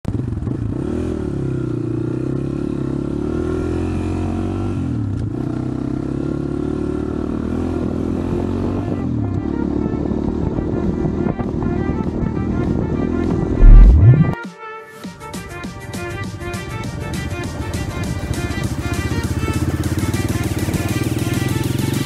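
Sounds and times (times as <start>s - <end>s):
motorcycle engine revving: 13.6s - 14.4s.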